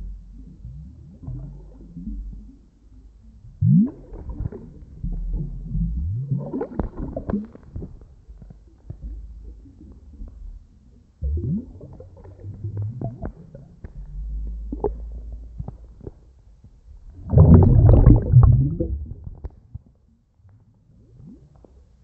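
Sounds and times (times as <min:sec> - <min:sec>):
underwater bubbles gurgling: 0:03.6 - 0:08.2, 0:11.2 - 0:15.6, 0:17.0 - 0:19.5.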